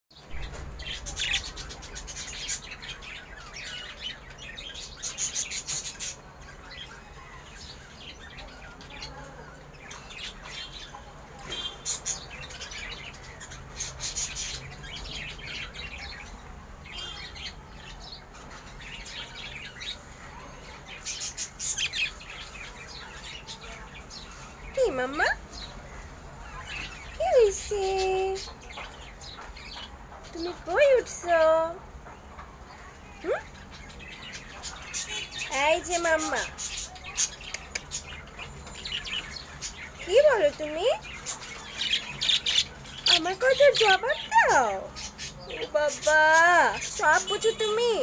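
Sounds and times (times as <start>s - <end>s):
budgerigar chirping and chattering: 33.2s - 48.0s.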